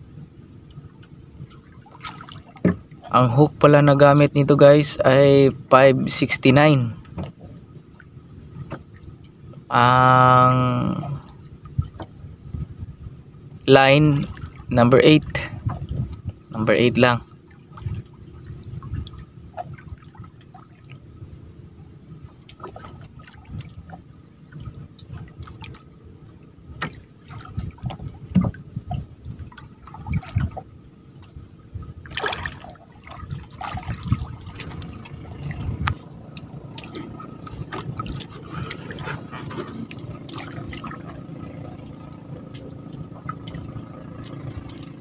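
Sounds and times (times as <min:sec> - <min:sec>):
water sloshing and dripping: 0:00.6 - 0:04.2, 0:06.8 - 0:09.7, 0:10.4 - 0:12.6, 0:14.0 - 0:45.0
small splashes: 0:01.4 - 0:03.1, 0:17.2 - 0:21.2, 0:22.3 - 0:45.0.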